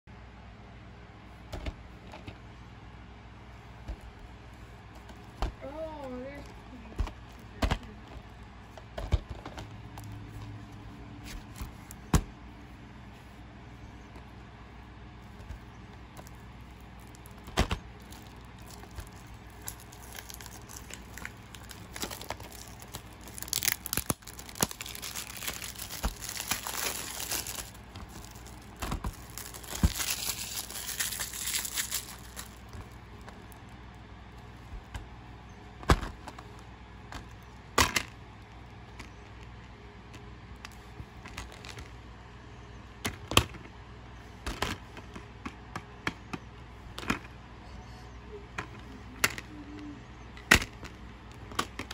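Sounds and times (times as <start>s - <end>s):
cellophane wrap crinkling: 15.3s - 33.8s.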